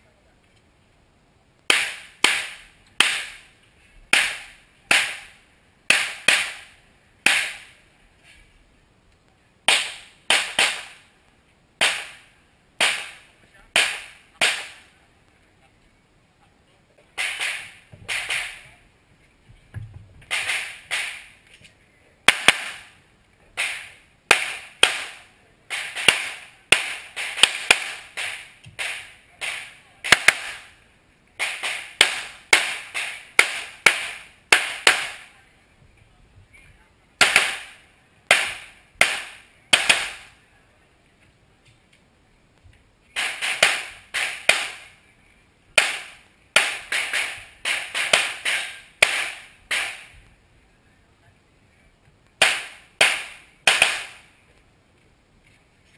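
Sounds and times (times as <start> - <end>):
handgun shots with echo: 52.4 - 54.2.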